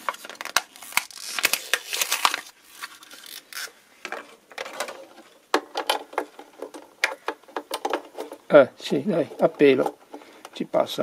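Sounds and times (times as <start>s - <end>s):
plastic packaging crinkling: 0.0s - 3.8s.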